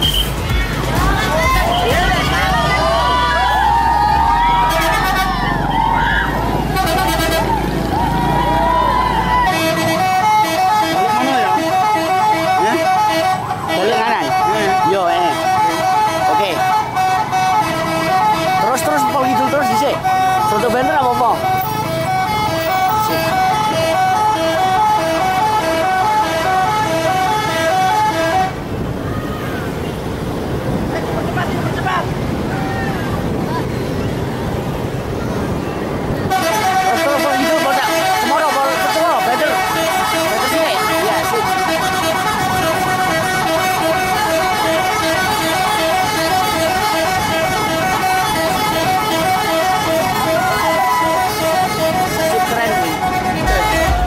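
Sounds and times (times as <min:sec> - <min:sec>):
bus musical horn tune: 0:00.0 - 0:00.4, 0:04.4 - 0:05.6, 0:06.6 - 0:07.7, 0:09.4 - 0:28.7, 0:36.2 - 0:54.0.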